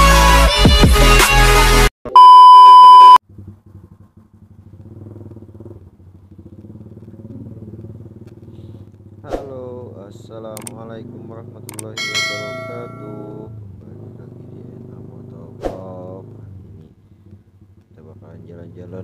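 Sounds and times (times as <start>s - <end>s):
loud electronic beep: 2.1s - 3.2s
motorcycle engine running: 3.2s - 15.2s.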